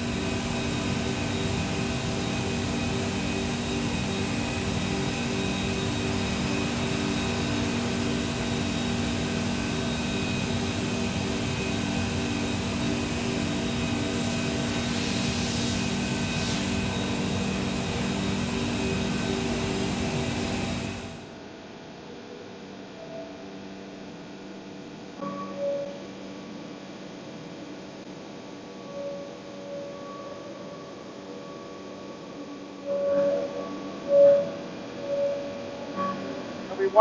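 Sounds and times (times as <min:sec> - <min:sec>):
router machine drone: 0:00.0 - 0:21.3
hiss: 0:14.1 - 0:16.8.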